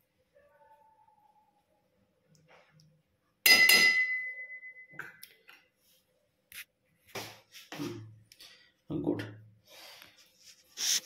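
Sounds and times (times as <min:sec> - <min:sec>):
metal kitchenware clinking: 0:03.4 - 0:04.7.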